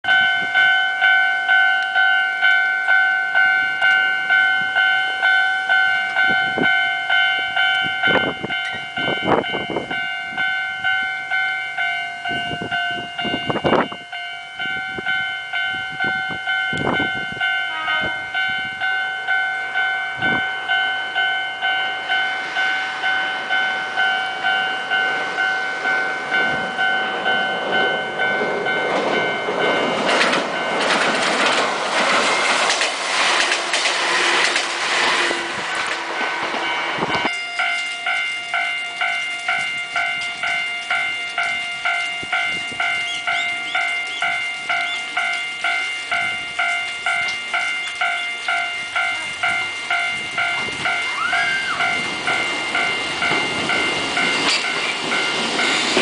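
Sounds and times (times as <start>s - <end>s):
level crossing bell clanging: 0.0s - 32.9s, 35.4s - 56.0s
electric train running: 18.4s - 56.0s.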